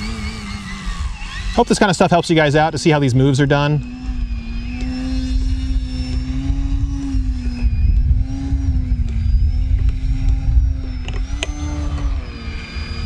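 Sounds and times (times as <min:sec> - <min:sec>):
model plane electric motor buzzing: 0:00.0 - 0:13.0
wind rumble on microphone: 0:03.8 - 0:13.0.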